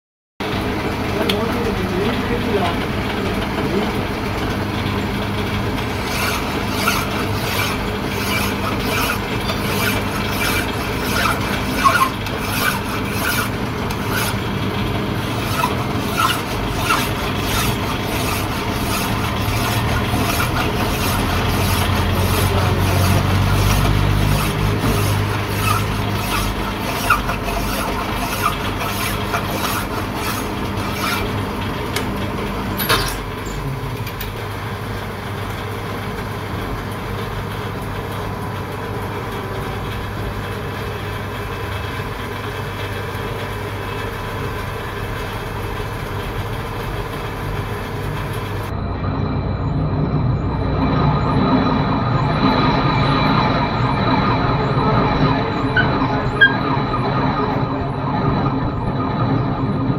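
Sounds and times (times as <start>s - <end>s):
lathe humming: 0.4s - 33.5s, 34.2s - 59.9s
metal filing strokes: 5.8s - 31.6s.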